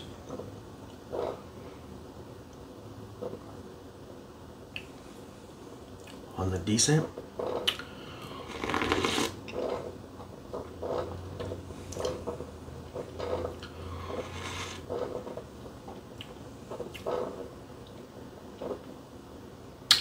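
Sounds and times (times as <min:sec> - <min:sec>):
person slurping from a cup: 0:07.7 - 0:09.8, 0:13.7 - 0:15.0.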